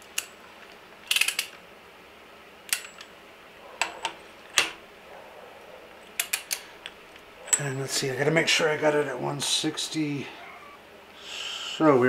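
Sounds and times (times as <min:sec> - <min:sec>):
torque wrench metal clicks: 0:01.0 - 0:01.6, 0:02.7 - 0:03.1, 0:06.2 - 0:07.7.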